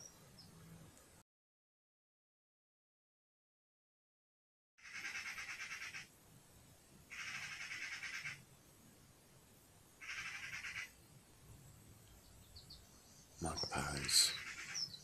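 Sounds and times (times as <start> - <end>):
magpies chattering: 4.8 - 6.1, 7.1 - 8.4, 10.0 - 11.0, 12.4 - 15.0.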